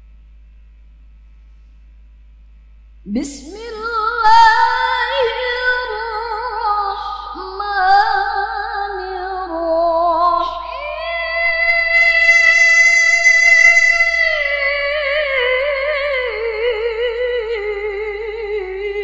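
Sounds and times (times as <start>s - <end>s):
woman reciting melodically: 3.1s - 19.0s.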